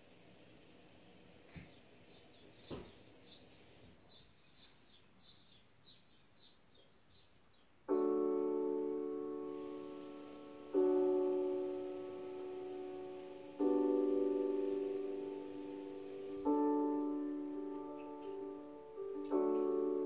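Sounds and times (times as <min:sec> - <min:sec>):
faint knocks: 0:02.6 - 0:03.0
loud piano chord: 0:07.9 - 0:20.0.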